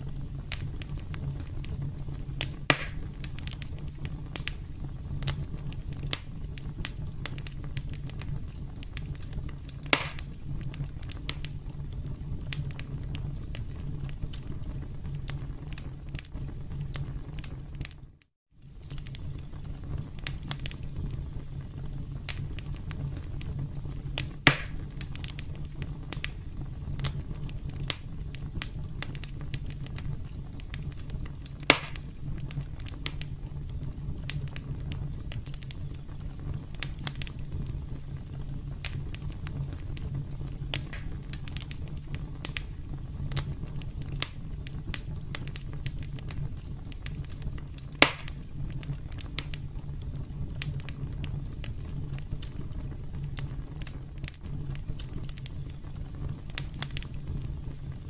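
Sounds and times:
campfire crackling: 0:00.0 - 0:58.0
loud sharp pops: 0:02.4 - 0:03.2, 0:09.8 - 0:10.4, 0:24.4 - 0:24.9, 0:31.6 - 0:32.1, 0:40.8 - 0:41.3, 0:48.0 - 0:48.4.

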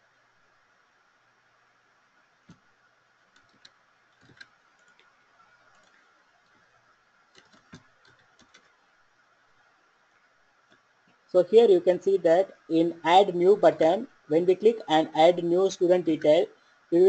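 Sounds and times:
faint steady hum: 0:00.0 - 0:17.0
keyboard and mouse clicks: 0:03.2 - 0:06.7, 0:07.3 - 0:08.8.

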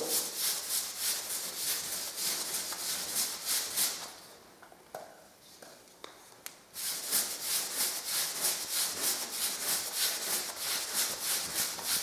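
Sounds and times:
paintbrush swishing on wall: 0:00.0 - 0:04.2, 0:06.8 - 0:12.0.

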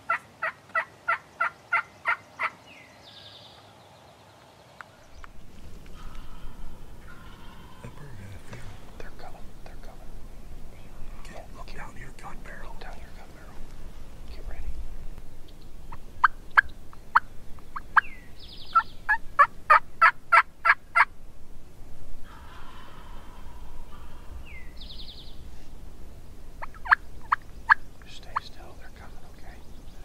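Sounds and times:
turkey gobble: 0:00.0 - 0:02.6, 0:05.9 - 0:08.9, 0:18.7 - 0:21.1, 0:22.2 - 0:24.6, 0:26.6 - 0:28.4
turkey yelps: 0:22.3 - 0:24.4.

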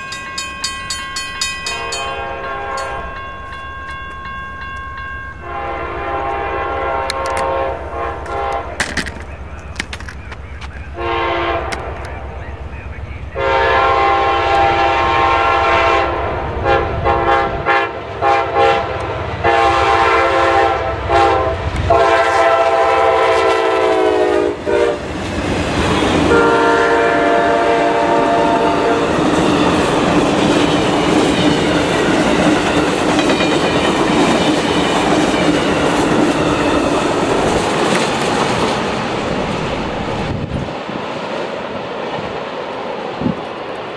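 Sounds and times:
train cars rumbling by: 0:00.0 - 0:43.9
locomotive air horn blasts: 0:01.7 - 0:03.1, 0:05.4 - 0:08.8, 0:11.0 - 0:12.2, 0:13.4 - 0:25.0, 0:26.3 - 0:29.1
wheel clatter over rail joints: 0:08.2 - 0:10.9.

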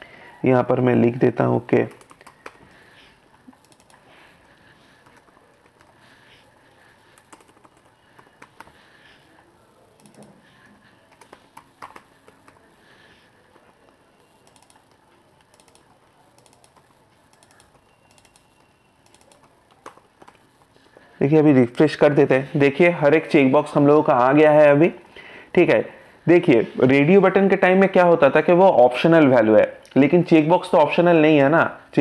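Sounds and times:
faint keyboard typing: 0:01.2 - 0:22.6.

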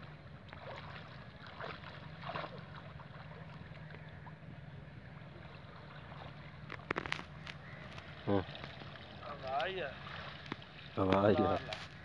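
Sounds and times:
low steady hum: 0:00.0 - 0:12.0
soft splashes: 0:00.0 - 0:12.0
water sloshing and lapping: 0:00.0 - 0:12.0.

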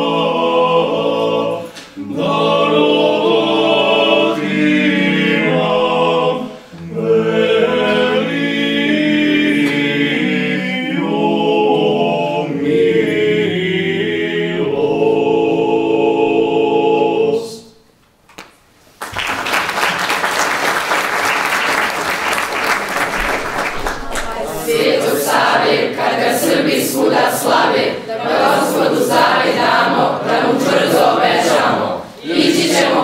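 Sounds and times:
choir singing: 0:00.0 - 0:17.8, 0:22.1 - 0:33.0
male vocal ensemble singing: 0:00.0 - 0:17.8
audience applause: 0:19.0 - 0:25.5.

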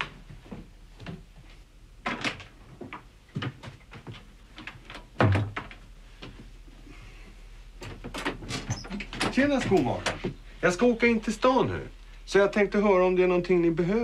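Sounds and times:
wooden door thump: 0:05.2 - 0:05.7.

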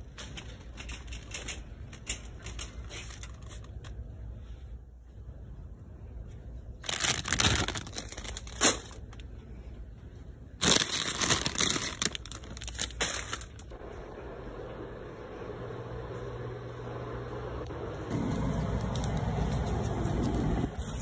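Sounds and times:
plastic bags crinkling: 0:06.8 - 0:09.2, 0:10.6 - 0:13.8.

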